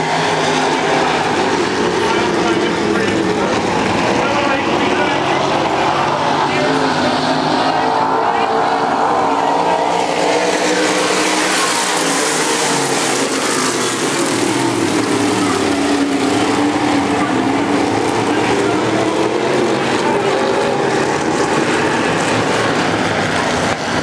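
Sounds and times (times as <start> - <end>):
race car engines revving: 0.0 - 24.0.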